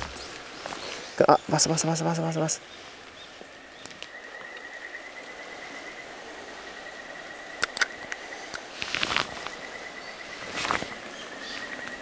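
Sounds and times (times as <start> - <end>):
sharp clicks: 7.6 - 8.7.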